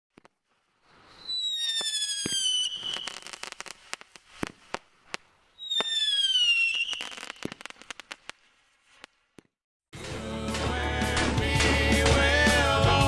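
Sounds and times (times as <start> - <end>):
firework crackling pops: 0.1 - 9.6
firework whistle sliding down: 1.0 - 4.0, 5.6 - 7.8.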